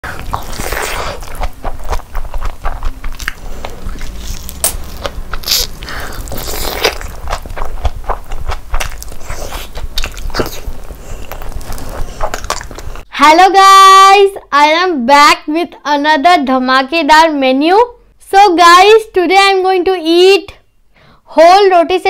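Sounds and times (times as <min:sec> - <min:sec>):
close chewing and mouth clicks: 0:00.0 - 0:13.1.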